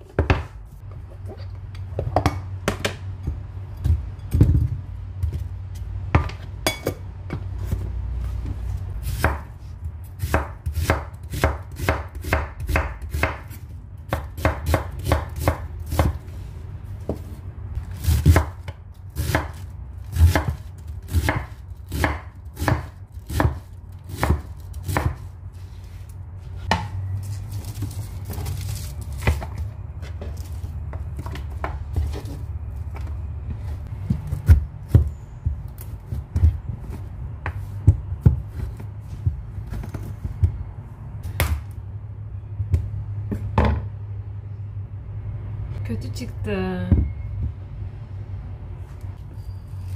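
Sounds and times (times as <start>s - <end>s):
knife chopping on wooden board: 10.2s - 16.2s, 18.0s - 18.6s, 19.2s - 25.3s.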